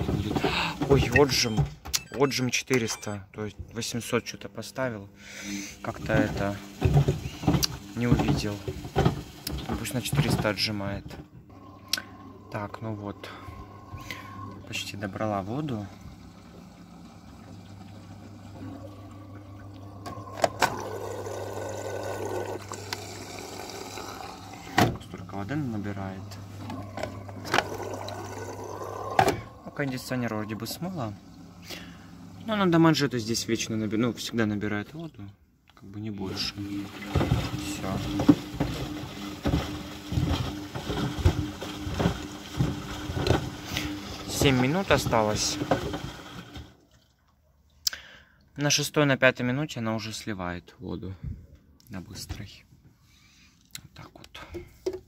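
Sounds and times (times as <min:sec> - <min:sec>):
water rushing into washing machine: 0:00.0 - 0:01.6, 0:05.4 - 0:35.2, 0:36.0 - 0:47.4.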